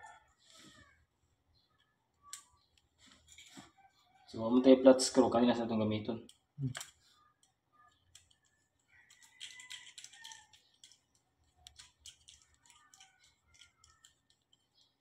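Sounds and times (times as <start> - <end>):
screwdriver clicking and scraping: 6.3 - 15.0.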